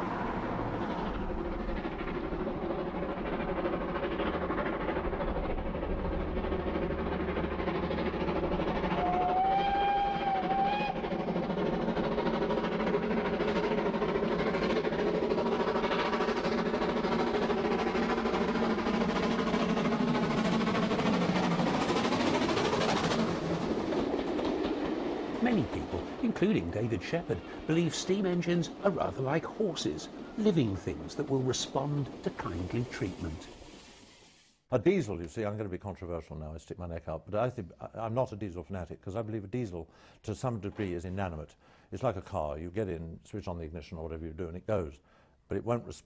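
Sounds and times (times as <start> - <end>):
steam train running: 0.0 - 34.6
steam whistle: 8.9 - 11.1.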